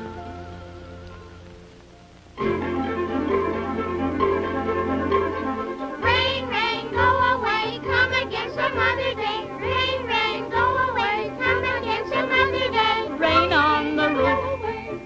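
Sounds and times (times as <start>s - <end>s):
band accompaniment: 2.4s - 14.8s
person singing: 6.0s - 15.0s.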